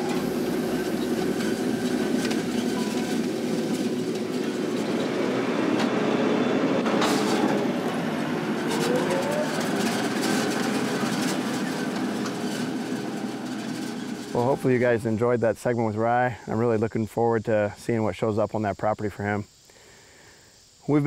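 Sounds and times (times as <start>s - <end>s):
machinery knocks and rattles: 0.0s - 6.0s, 6.8s - 14.6s
tractor engine running: 0.0s - 15.4s.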